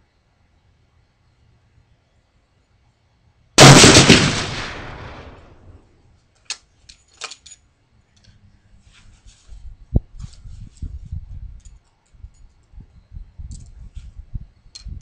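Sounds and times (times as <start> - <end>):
rifle shot: 3.6 - 5.8.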